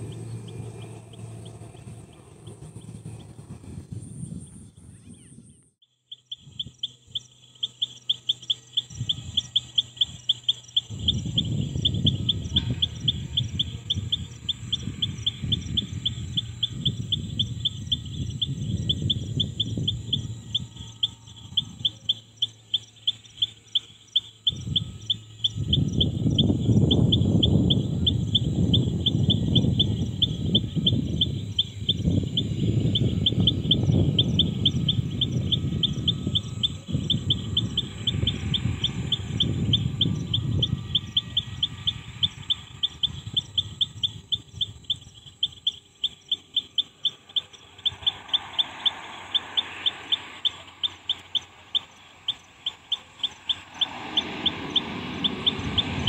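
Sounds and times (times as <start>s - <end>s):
rapid chirping: 0.0s - 5.4s, 6.0s - 56.0s
low rumble: 0.0s - 5.8s.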